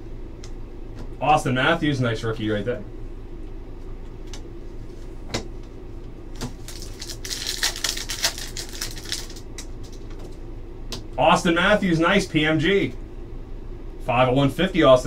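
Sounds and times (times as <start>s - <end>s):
trading cards clicking and rustling: 6.4s - 10.4s.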